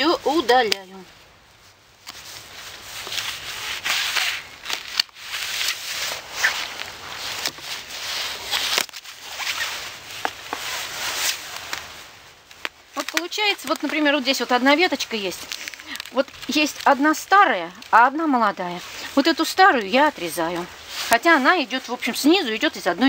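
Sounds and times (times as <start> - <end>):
dry rose canes rustling and crackling: 0.0 - 23.0
pruning shears snipping: 12.6 - 14.2.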